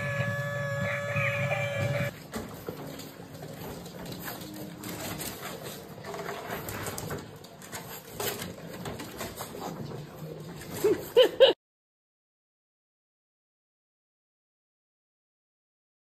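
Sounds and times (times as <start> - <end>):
puppies whimpering and grunting: 0.0 - 2.1.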